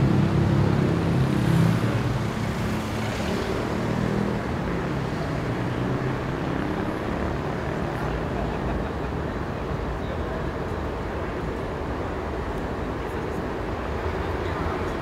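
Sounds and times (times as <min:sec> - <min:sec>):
road and urban noise: 0:00.0 - 0:15.0.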